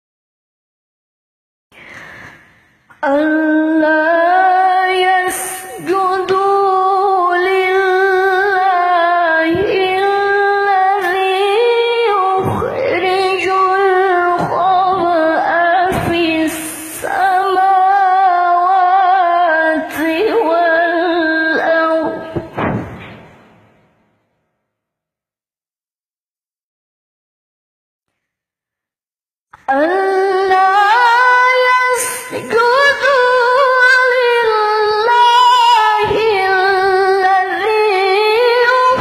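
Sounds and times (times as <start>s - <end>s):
woman breathing: 1.7s - 2.9s
woman reciting melodically: 2.9s - 22.6s, 29.6s - 39.0s.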